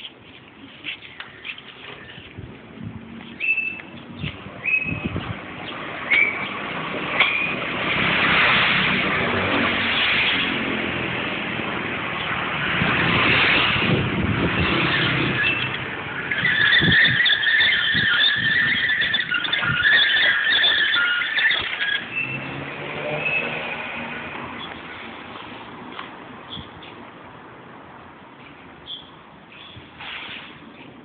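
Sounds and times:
road traffic passing: 0.0 - 31.0
steady high squeal: 14.6 - 24.0.

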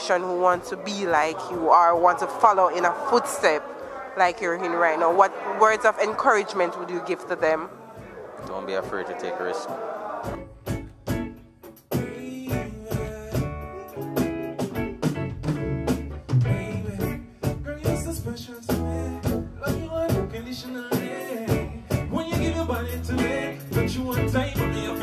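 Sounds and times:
upbeat reggae music: 0.0 - 25.0
guitar: 7.2 - 25.0
person singing: 11.9 - 14.2, 16.4 - 25.0.

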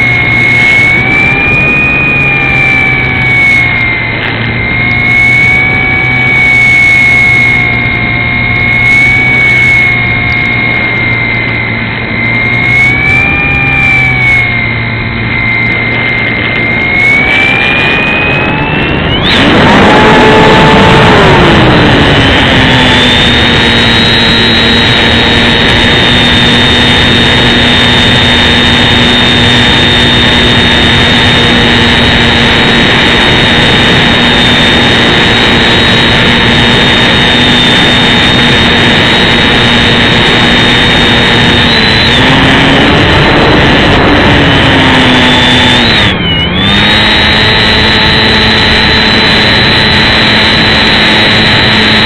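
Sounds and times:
model plane motor whine: 0.0 - 52.0
rushing air: 0.0 - 52.0.

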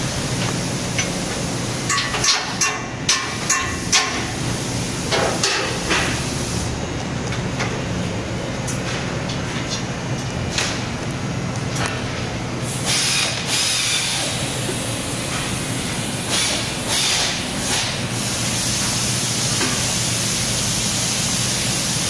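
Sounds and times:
washer and dryer hissing: 0.0 - 6.9, 12.5 - 22.0
low machine hum: 0.0 - 22.0.

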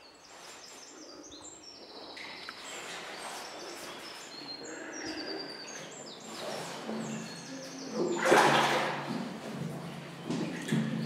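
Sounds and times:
birds chirping: 0.0 - 8.2.

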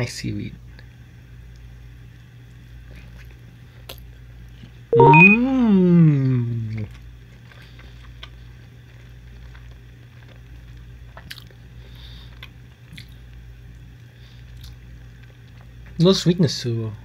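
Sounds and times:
person chewing food: 6.9 - 13.3, 14.4 - 16.0.

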